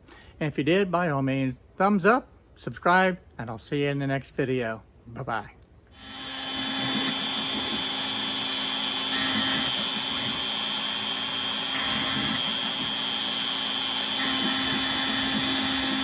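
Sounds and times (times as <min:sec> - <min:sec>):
cnc router spindle running: 0:06.0 - 0:16.0
high whine: 0:06.0 - 0:16.0.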